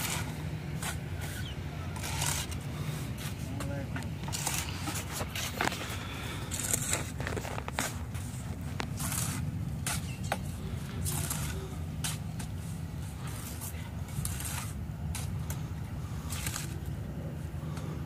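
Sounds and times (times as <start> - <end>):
trowel scraping and tapping mortar: 6.5 - 15.7.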